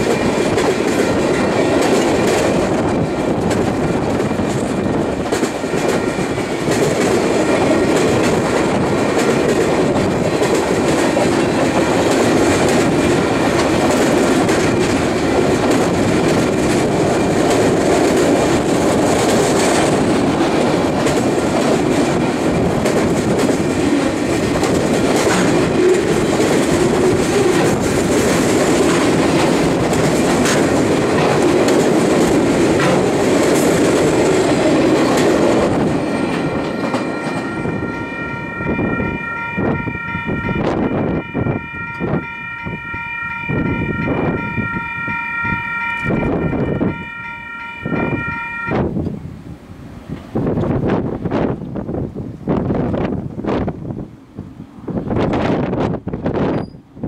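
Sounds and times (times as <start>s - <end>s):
wheels clacking over rail joints: 0.0s - 39.5s
train wheels rumbling on rails: 0.0s - 57.0s
distant train horn chord: 36.0s - 48.9s.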